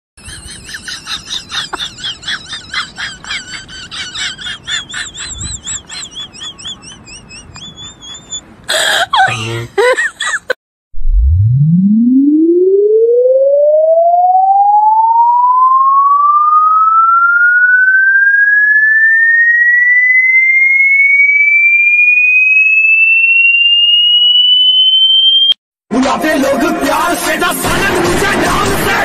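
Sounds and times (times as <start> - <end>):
rising pure-tone frequency sweep: 11.0 - 25.6
music: 25.9 - 29.0.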